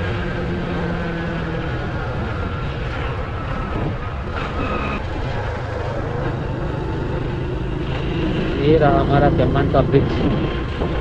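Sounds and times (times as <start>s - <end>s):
wind noise on microphone: 0.0s - 8.6s, 9.9s - 11.0s.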